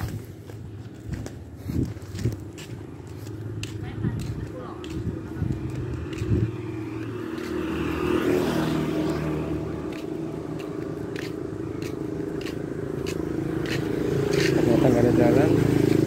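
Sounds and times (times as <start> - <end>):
vehicle engine running: 8.7 - 16.0.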